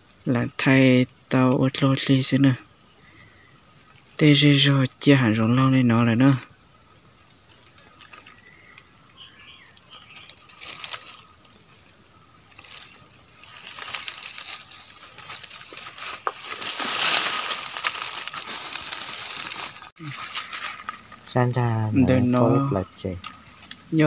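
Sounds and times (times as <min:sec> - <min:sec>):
brushing against twigs and branches: 0:07.5 - 0:22.4, 0:23.3 - 0:24.0
footsteps crunching through dry leaves: 0:07.8 - 0:21.4.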